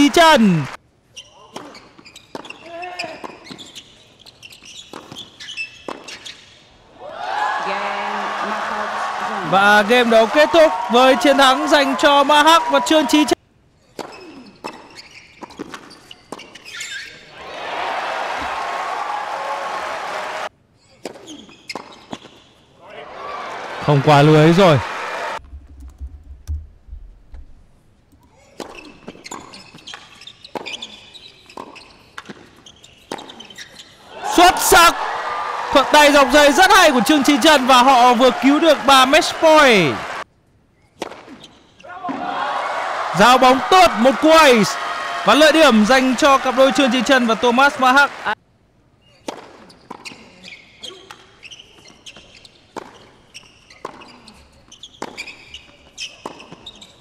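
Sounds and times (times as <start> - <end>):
shoes squeaking on court: 1.1 - 6.8, 13.8 - 17.3, 20.8 - 22.7, 28.2 - 34.1, 40.8 - 41.9, 49.0 - 57.0
tennis ball bouncing: 31.5 - 33.4, 51.8 - 54.1, 56.2 - 56.7.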